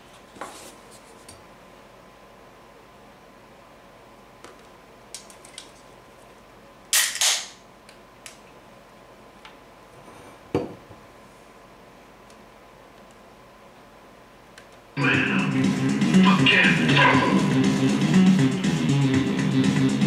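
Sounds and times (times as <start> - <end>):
can cracked open with hiss: 6.9 - 7.6.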